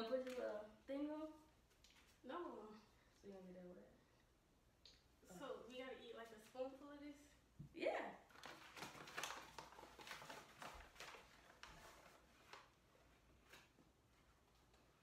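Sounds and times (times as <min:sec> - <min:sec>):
plastic bag crinkling: 0:08.3 - 0:12.7.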